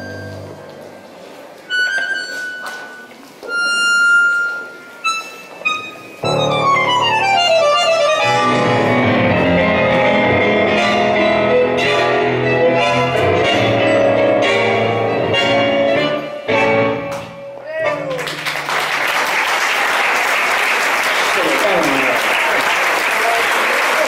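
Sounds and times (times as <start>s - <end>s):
tango ensemble with piano and violin: 0.0s - 18.5s.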